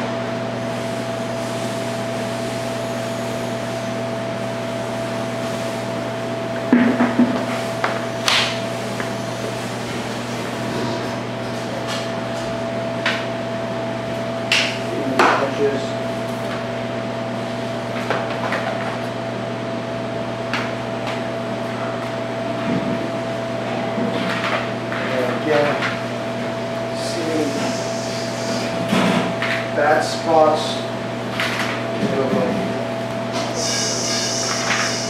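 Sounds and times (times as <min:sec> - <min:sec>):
electrical hum: 0:00.0 - 0:35.0.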